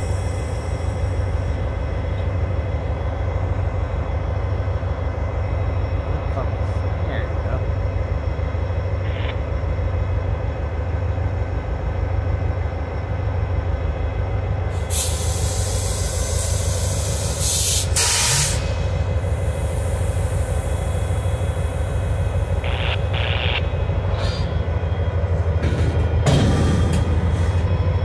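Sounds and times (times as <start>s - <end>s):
diesel locomotive engine rumbling: 0.0s - 28.0s
loud air hiss: 14.7s - 21.9s.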